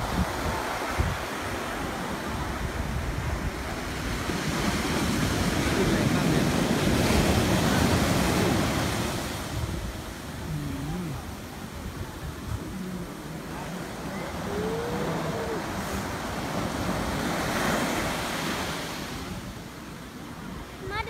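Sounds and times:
sea surf breaking on sand: 0.0 - 21.0.

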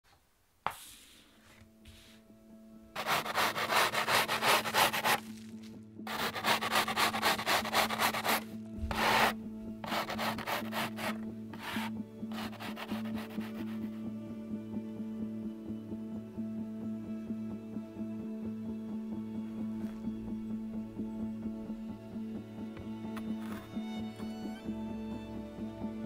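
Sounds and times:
soft background music: 0.1 - 26.0
plastic scoop scraping snow off wood: 3.0 - 13.6.

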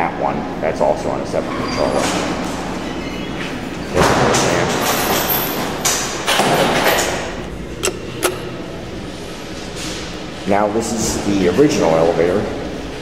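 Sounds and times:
elevator doors sliding: 1.6 - 10.4
call button clicks: 7.8 - 8.7.

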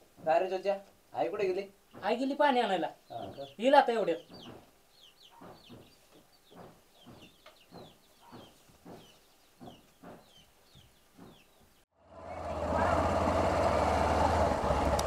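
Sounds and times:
chickens clucking: 3.1 - 11.6.

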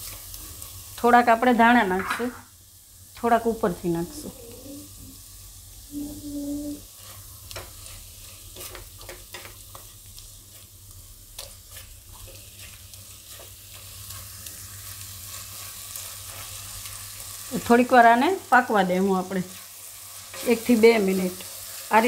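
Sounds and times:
spatula stirring and scraping: 0.0 - 1.0, 6.0 - 18.0, 19.2 - 22.0
masala sizzling in oil: 0.0 - 22.0.

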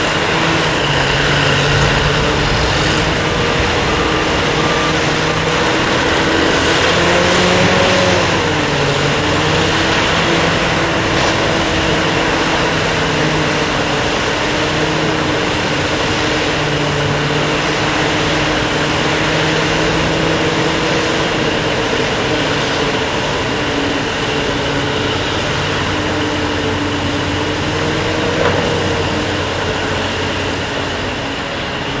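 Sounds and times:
diesel truck engines running: 0.0 - 32.0.

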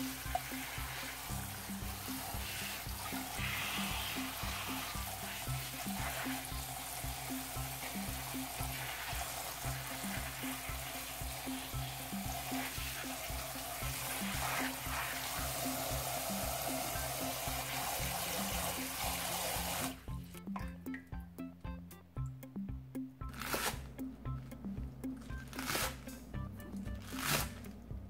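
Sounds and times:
tap water running and splashing: 0.0 - 20.7
background music with low notes: 0.0 - 28.0.

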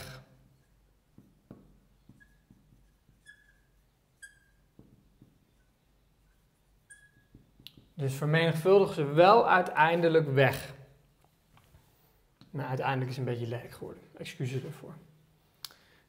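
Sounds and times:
marker squeaking on glass: 0.0 - 8.0
marker tapping on glass board: 0.6 - 8.0.

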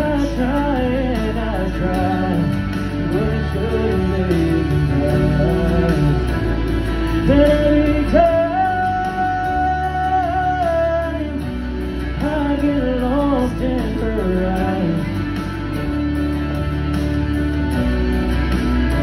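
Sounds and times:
man singing: 0.0 - 15.5
keyboard accompaniment: 0.0 - 19.0.

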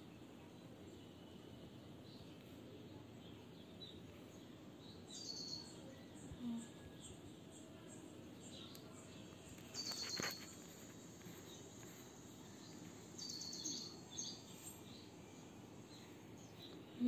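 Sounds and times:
faint outdoor background noise: 0.0 - 17.0
faint click: 8.7 - 8.9.

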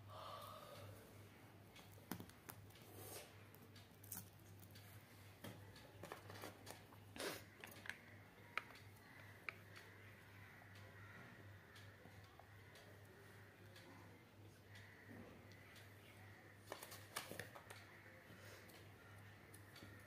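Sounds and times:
craft materials clicking and rustling: 5.5 - 7.0.

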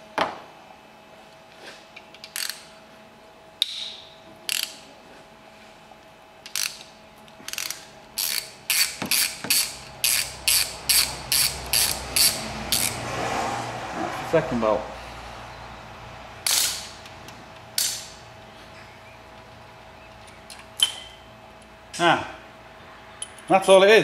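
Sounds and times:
socket ratchet clicking: 2.2 - 2.7, 3.6 - 4.8, 6.4 - 13.0, 16.4 - 17.1, 17.8 - 18.1.

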